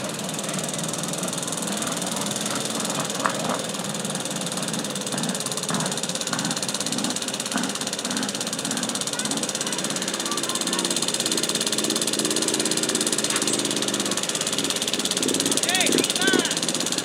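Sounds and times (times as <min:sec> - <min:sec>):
garden tractor engine running: 0:00.0 - 0:17.0
sharp clacks: 0:01.8 - 0:03.8.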